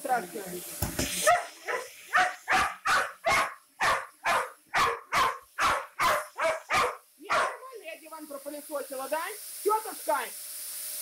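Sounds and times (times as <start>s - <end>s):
dog barking: 1.3s - 7.7s.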